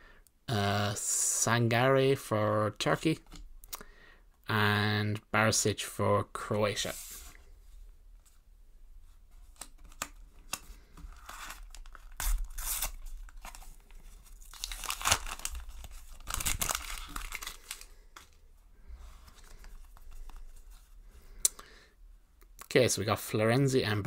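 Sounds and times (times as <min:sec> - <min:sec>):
paper wrapper tearing and crinkling: 0:11.2 - 0:18.4.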